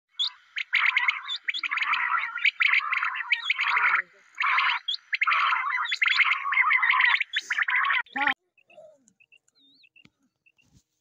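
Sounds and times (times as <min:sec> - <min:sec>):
birds chattering: 0:00.1 - 0:10.7.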